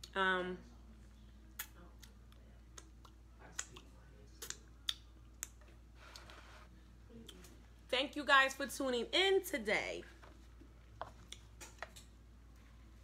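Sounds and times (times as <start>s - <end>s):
wet lip smacks: 2.8s - 5.6s.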